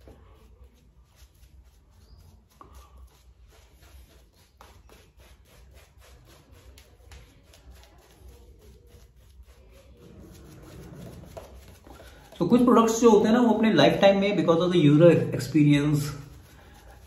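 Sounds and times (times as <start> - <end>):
shaving brush swishing lather: 0.0 - 17.0.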